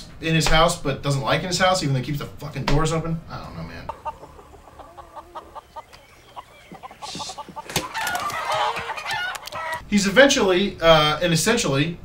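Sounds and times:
chickens clucking: 3.4s - 9.8s.

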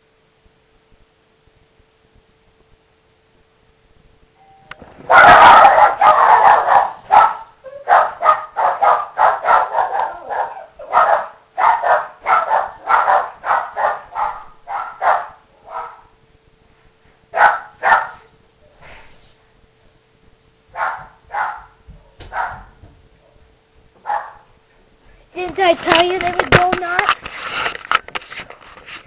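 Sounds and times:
dogs barking excitedly: 5.0s - 16.2s, 17.3s - 18.3s, 20.7s - 24.6s.

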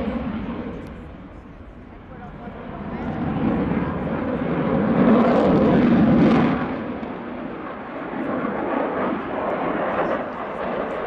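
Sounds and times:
jet engine rushing overhead: 0.0s - 11.0s.

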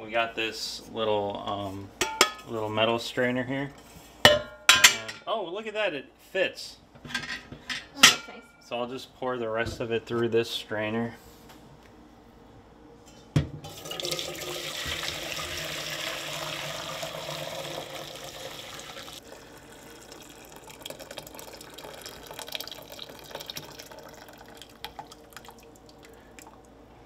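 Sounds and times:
liquid pouring through a strainer: 13.7s - 26.6s
dribbles and drips: 19.2s - 26.8s.

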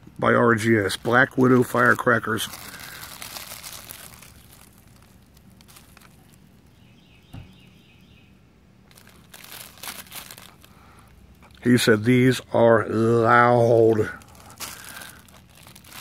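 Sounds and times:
paper crinkling and rustling: 1.4s - 6.5s, 8.9s - 10.8s, 13.9s - 16.0s.

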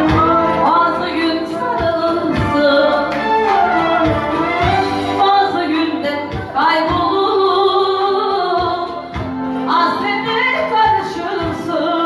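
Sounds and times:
regular drum beat: 0.0s - 5.3s
band accompaniment: 0.0s - 12.0s
woman singing: 0.0s - 12.0s.

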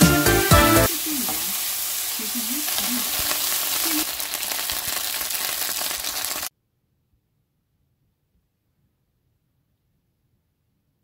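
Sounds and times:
vegetables sizzling in a wok: 0.0s - 6.5s.

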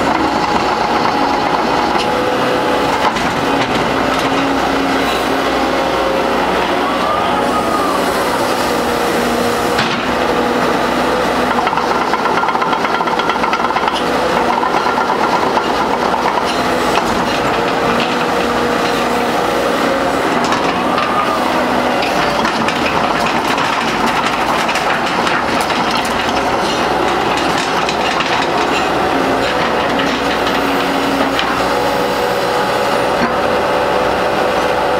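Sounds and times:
hydraulic whine: 0.0s - 12.3s
diesel engine running: 0.0s - 34.9s
knocks and clatters: 11.5s - 19.0s, 22.0s - 31.6s.

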